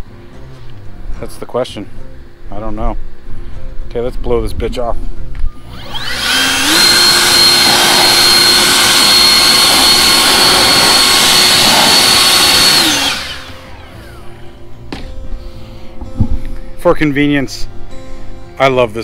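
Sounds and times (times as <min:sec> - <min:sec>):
leaf blower whine: 0:05.5 - 0:15.6.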